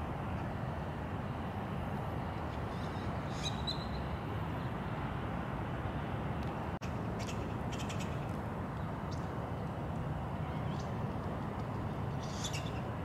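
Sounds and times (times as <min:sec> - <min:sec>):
low outdoor background rumble: 0:00.0 - 0:13.0
bird chirp: 0:02.7 - 0:04.1, 0:11.9 - 0:12.9.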